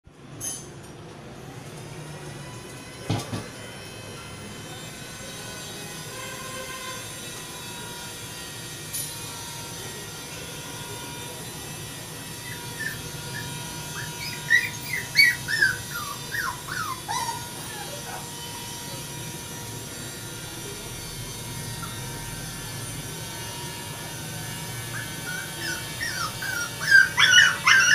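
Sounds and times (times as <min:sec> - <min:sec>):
steady background hum: 0:11.1 - 0:27.9
puppies whimpering: 0:12.3 - 0:18.4, 0:21.7 - 0:22.3, 0:24.7 - 0:27.9.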